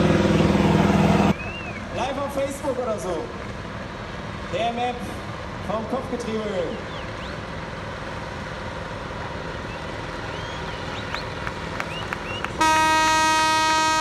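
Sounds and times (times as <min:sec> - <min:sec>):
loud horn blast: 0:12.6 - 0:14.0.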